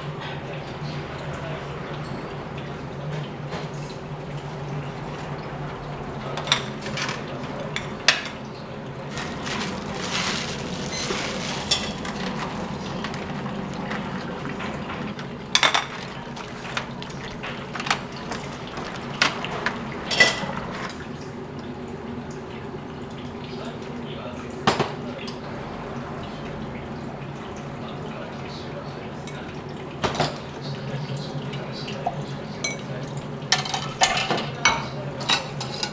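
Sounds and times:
bowls and utensils clinking: 0:06.3 - 0:08.4, 0:09.1 - 0:21.0, 0:32.6 - 0:32.9, 0:33.5 - 0:35.9.

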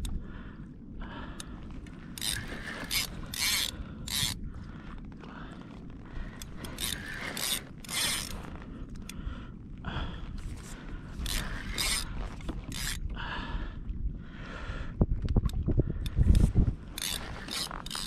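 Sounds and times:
wind rumble on microphone: 0:00.0 - 0:18.0
fishing reel whirring and clicking: 0:02.1 - 0:04.4, 0:06.4 - 0:08.5, 0:11.1 - 0:13.1, 0:16.0 - 0:18.0.

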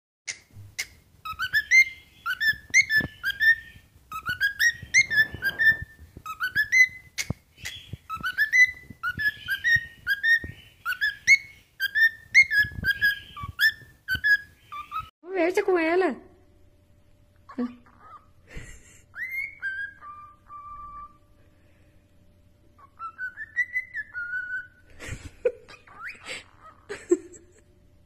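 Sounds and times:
cockatiel whistling: 0:00.3 - 0:15.1, 0:19.1 - 0:21.3, 0:22.8 - 0:24.8, 0:25.7 - 0:26.8.

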